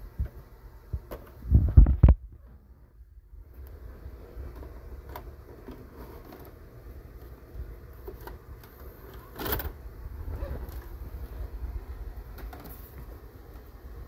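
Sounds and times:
vcr loading mechanism clunk: 8.0s - 9.8s.

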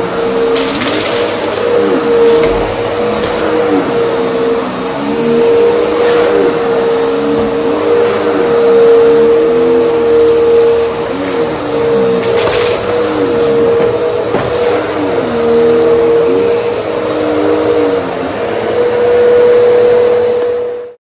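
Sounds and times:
vacuum cleaner running: 0.0s - 21.0s.

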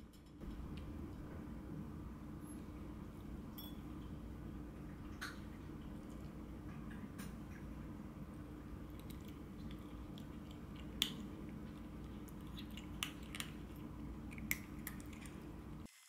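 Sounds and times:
low hum: 0.0s - 15.9s
kitten crunching kibble: 8.6s - 15.9s.

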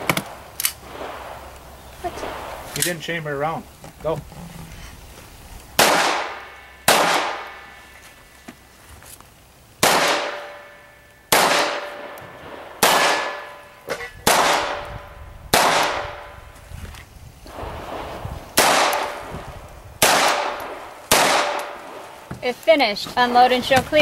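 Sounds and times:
pistol shots: 5.8s - 7.7s, 9.8s - 16.3s, 17.9s - 19.3s, 20.0s - 22.0s.

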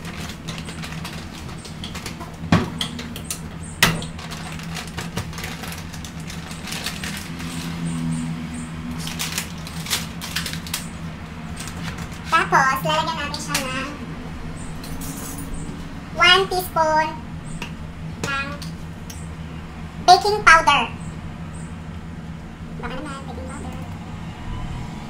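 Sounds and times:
plastic packet crinkling: 0.0s - 2.4s, 4.0s - 7.8s, 8.9s - 12.3s
kitchen items clattering: 0.0s - 7.9s, 14.8s - 15.6s
steady low hum: 0.0s - 25.0s.

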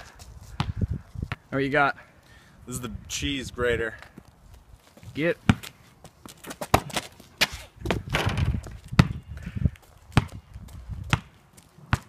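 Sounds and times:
basketball bouncing on asphalt: 0.5s - 1.5s, 5.4s - 12.0s.

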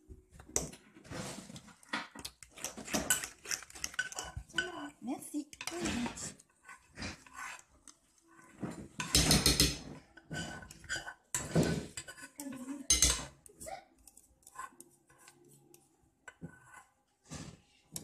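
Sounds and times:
utensil scraping glass bowl: 2.5s - 5.0s, 5.6s - 13.4s.

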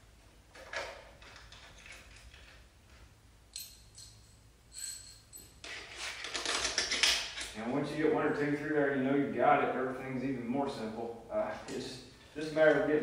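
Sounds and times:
metal parts rattling and scraping: 0.6s - 2.7s, 3.6s - 7.6s
sharp metallic clinks: 3.5s - 5.6s.

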